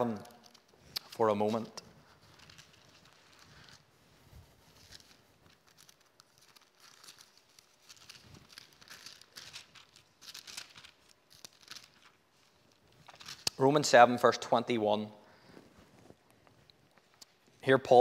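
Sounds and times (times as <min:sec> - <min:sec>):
pages turning: 0:00.0 - 0:13.7.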